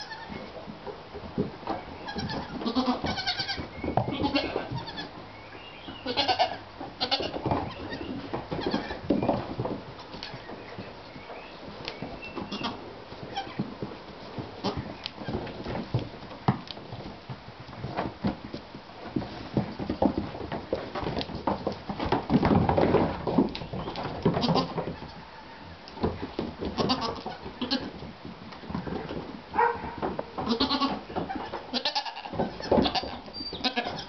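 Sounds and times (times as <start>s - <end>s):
goats bleating: 0.0s - 0.4s, 2.1s - 5.2s, 6.0s - 9.0s, 12.5s - 13.6s, 24.4s - 24.8s, 26.7s - 28.0s, 30.4s - 34.0s
hooves on wooden floor: 0.0s - 34.0s.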